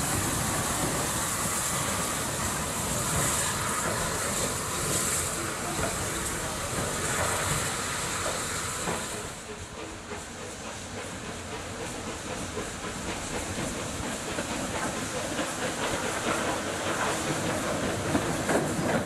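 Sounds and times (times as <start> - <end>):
steam hissing: 0.0 - 19.0
train wheels knocking on rails: 0.0 - 19.0.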